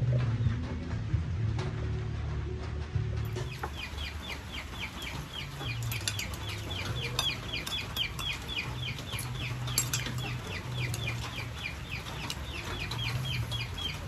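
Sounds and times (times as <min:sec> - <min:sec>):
bird peeping: 0:03.4 - 0:14.0.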